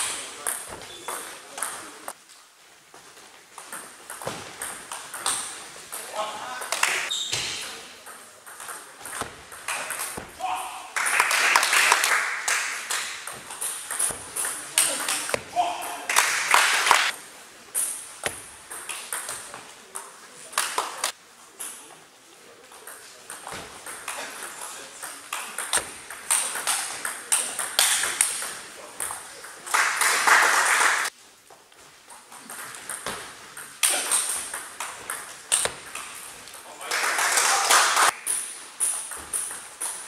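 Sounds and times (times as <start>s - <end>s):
table tennis balls clicking: 3.6s - 7.0s, 8.0s - 10.4s, 12.8s - 15.5s, 17.8s - 21.0s, 22.7s - 29.7s, 32.1s - 36.6s, 38.1s - 40.0s.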